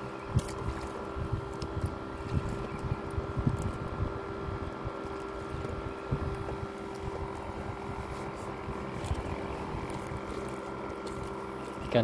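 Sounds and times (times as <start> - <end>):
boat motor running: 0.0 - 12.0
wind buffeting microphone: 0.0 - 12.0.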